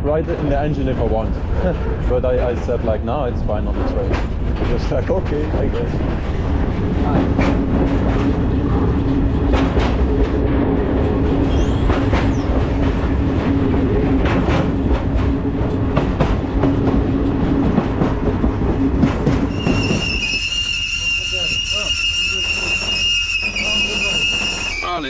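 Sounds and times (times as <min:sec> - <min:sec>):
wheels clacking over rail joints: 0:00.0 - 0:20.9
train rumble and hum: 0:00.0 - 0:25.0
high-pitched wheel squeal: 0:19.5 - 0:25.0.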